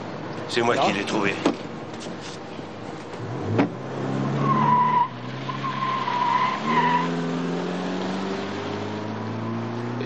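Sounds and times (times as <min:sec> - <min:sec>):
car engine revving: 0:02.8 - 0:10.0
car door shutting: 0:02.9 - 0:03.8
tyre squeal: 0:04.3 - 0:07.1.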